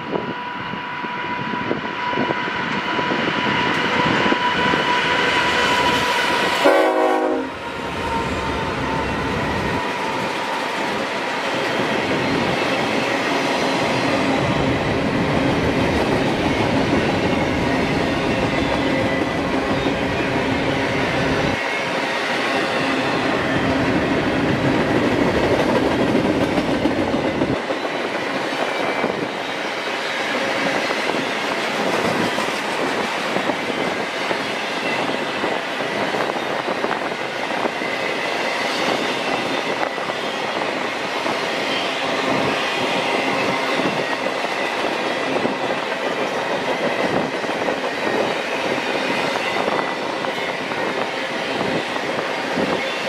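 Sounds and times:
train horn: 0.1 - 10.6.

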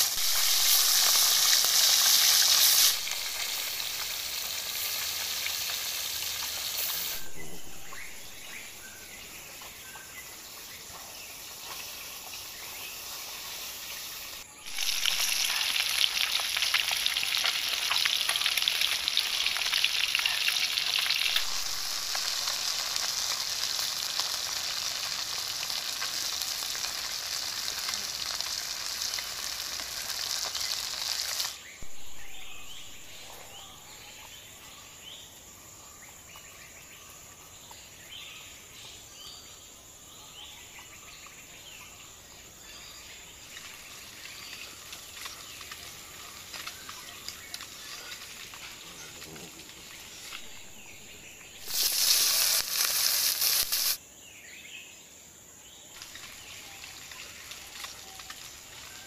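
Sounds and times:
fish sizzling in hot oil: 0.0 - 7.3, 11.3 - 31.7, 43.4 - 48.8, 51.5 - 54.0, 56.0 - 59.0.

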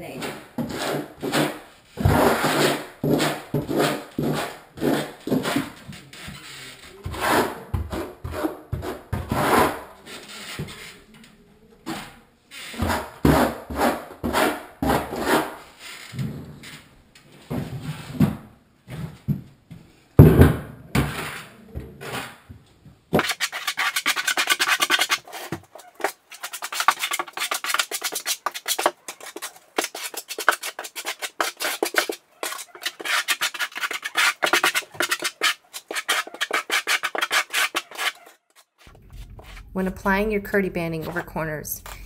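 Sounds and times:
trowel scraping mortar: 0.1 - 11.0, 11.9 - 15.8, 23.1 - 39.8.

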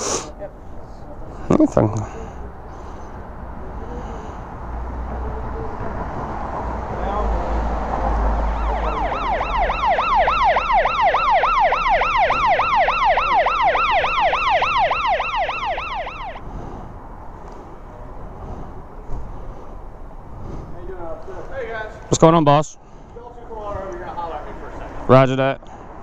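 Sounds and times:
police siren yelping: 8.2 - 16.4.

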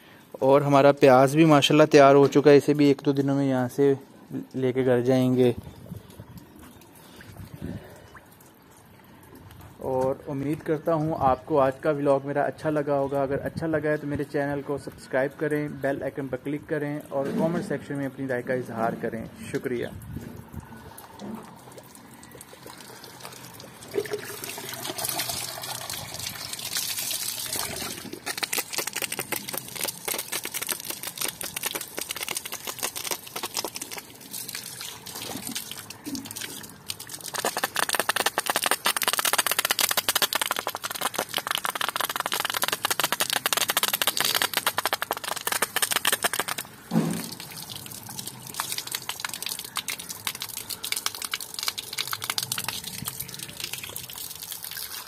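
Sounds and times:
water splashing and gushing: 20.1 - 55.0.

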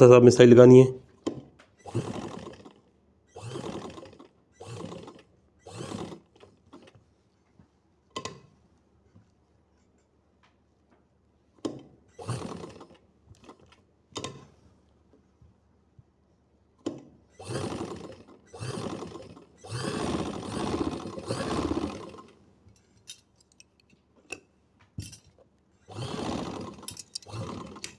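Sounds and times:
sewing machine stitching: 1.2 - 7.0, 11.6 - 14.5, 17.4 - 22.4, 25.9 - 27.9.

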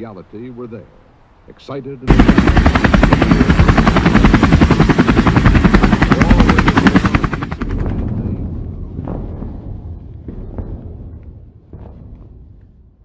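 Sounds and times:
helicopter rotor chopping: 2.1 - 8.4.

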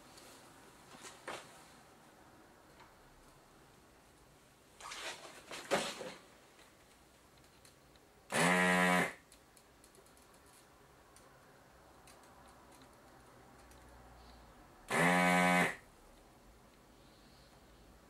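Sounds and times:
rustling and clicks: 4.8 - 8.1, 9.3 - 11.3
desoldering pump buzzing: 8.3 - 9.2, 14.9 - 15.8.

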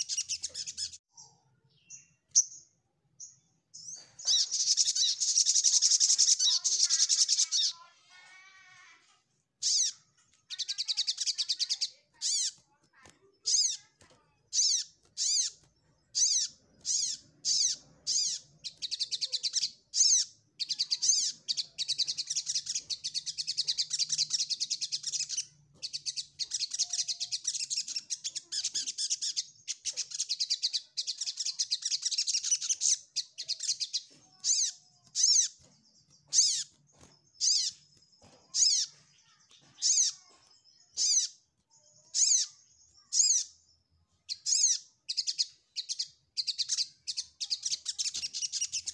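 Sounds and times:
sunbird singing trills: 13.4 - 48.9.

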